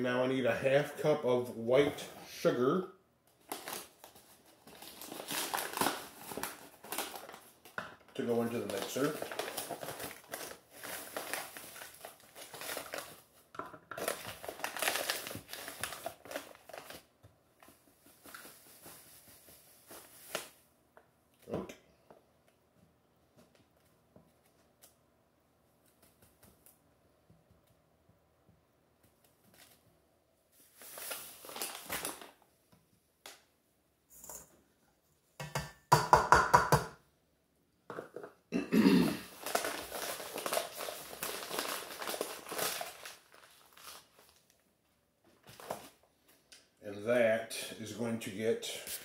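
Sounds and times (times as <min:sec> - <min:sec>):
paper bag crinkling: 0:03.4 - 0:17.1, 0:30.6 - 0:32.4, 0:39.2 - 0:44.6.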